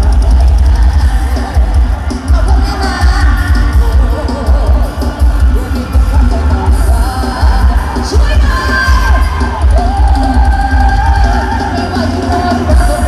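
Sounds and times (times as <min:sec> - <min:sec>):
band music over speakers: 0:00.0 - 0:13.0
crowd yelling: 0:00.0 - 0:13.0
heavy pulsing bass: 0:00.0 - 0:13.0
person singing: 0:00.0 - 0:13.0.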